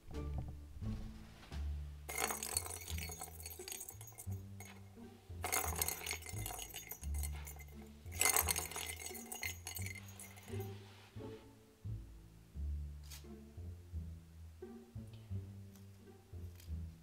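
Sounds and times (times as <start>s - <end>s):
low background music: 0.0s - 17.0s
bell ball rattling in toy track: 2.1s - 10.8s.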